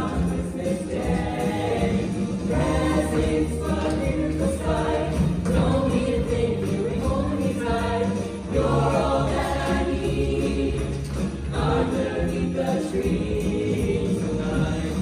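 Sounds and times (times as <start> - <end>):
choir singing: 0.0 - 15.0.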